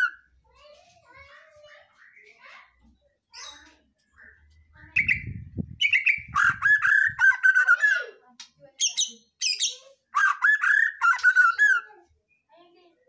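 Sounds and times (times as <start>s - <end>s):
songbird whistling and chattering: 4.2s - 8.2s, 8.8s - 12.0s.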